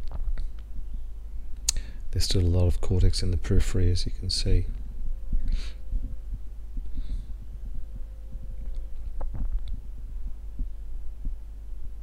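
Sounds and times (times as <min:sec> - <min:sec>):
steady low hum: 0:00.0 - 0:12.0
soft low thumps: 0:02.8 - 0:12.0.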